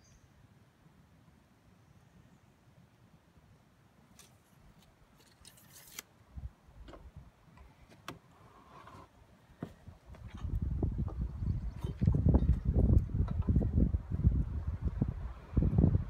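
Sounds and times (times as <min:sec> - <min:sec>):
board scrape: 0:08.4 - 0:09.2.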